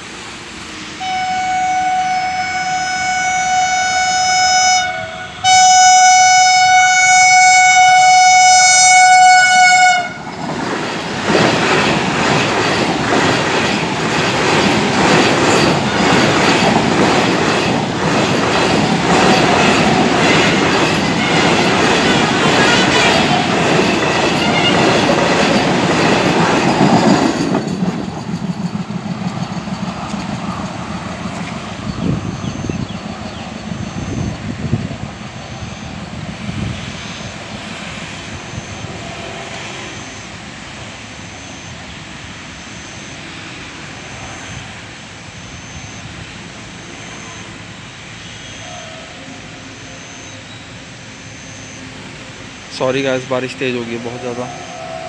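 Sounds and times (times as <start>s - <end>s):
train horn blasts: 1.0s - 10.3s, 21.2s - 25.0s, 48.2s - 50.6s, 54.0s - 55.0s
train wheels clattering over rails: 10.1s - 40.1s.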